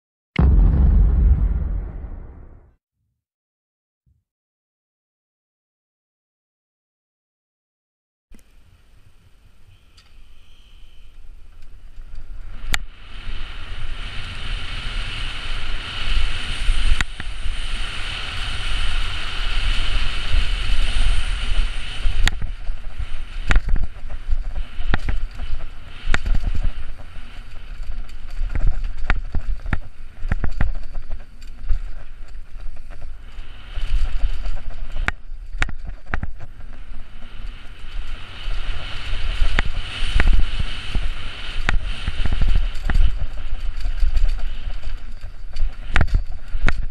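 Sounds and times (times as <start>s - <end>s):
wind buffeting microphone: 12.4s - 46.9s.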